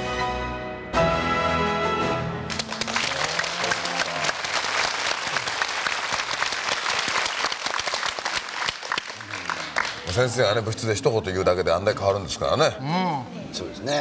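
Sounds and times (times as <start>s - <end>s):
applause: 2.5s - 10.4s.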